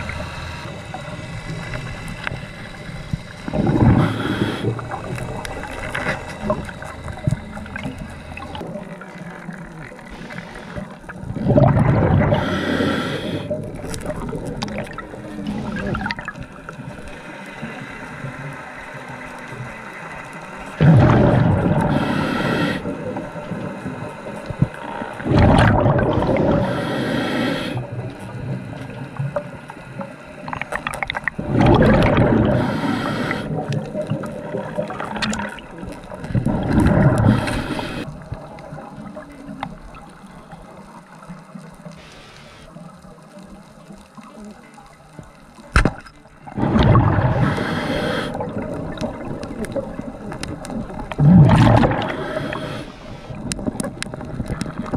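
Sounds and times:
diver exhaling bubbles: 1.0s - 9.0s, 10.1s - 16.4s, 20.8s - 23.2s, 25.2s - 28.1s, 30.8s - 38.1s, 46.5s - 54.9s.

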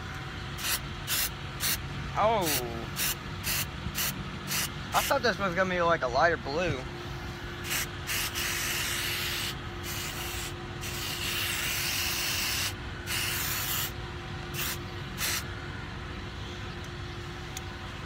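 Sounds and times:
aerosol spray hissing: 7.6s - 13.9s.

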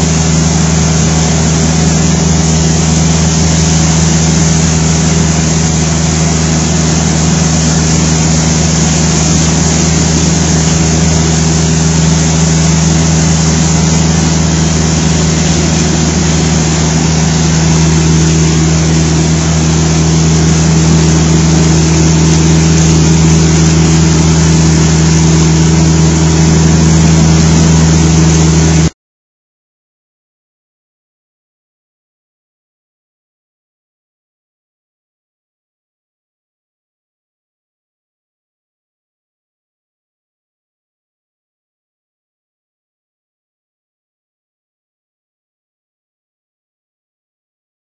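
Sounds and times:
carpet cleaning machine humming: 0.0s - 28.9s.

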